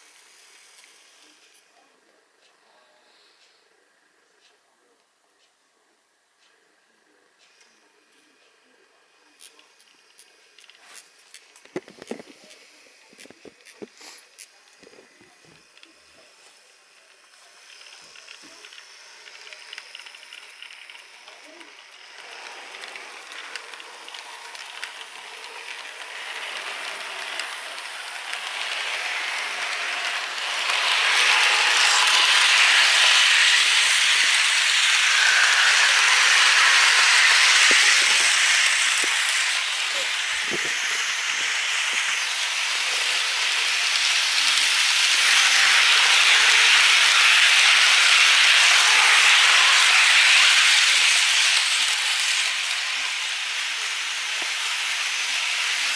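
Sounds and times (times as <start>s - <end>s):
model trains rattling on track: 15.7s - 55.9s.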